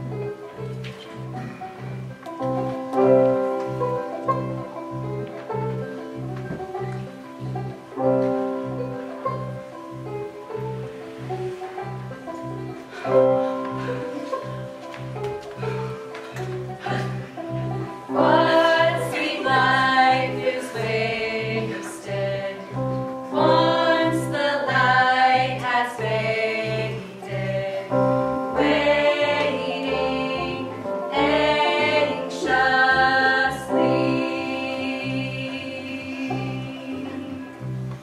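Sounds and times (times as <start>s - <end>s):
instrumental accompaniment: 0.0s - 38.0s
women singing in harmony: 12.9s - 37.7s.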